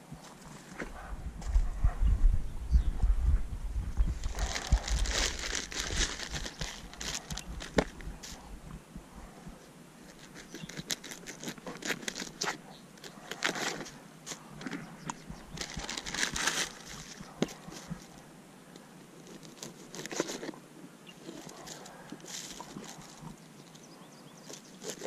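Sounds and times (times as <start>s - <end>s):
plastic bags rustling: 4.2s - 8.4s, 15.5s - 18.2s, 21.2s - 23.4s.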